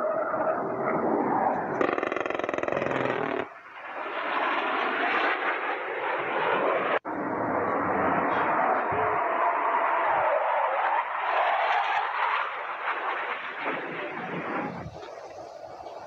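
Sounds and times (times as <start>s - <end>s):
jet passing: 0.0s - 16.0s.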